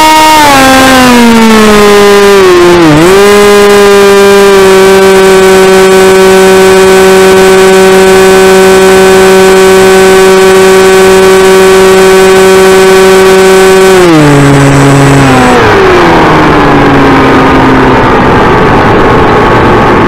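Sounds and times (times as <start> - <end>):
electric motor and propeller buzz: 0.0 - 20.0.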